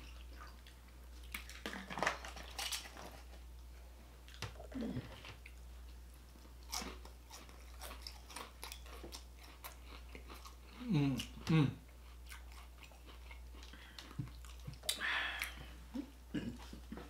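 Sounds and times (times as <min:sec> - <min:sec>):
person humming mm: 0:04.6 - 0:05.3, 0:10.8 - 0:11.8, 0:14.9 - 0:16.6
crunching fried onion rings: 0:06.5 - 0:11.4.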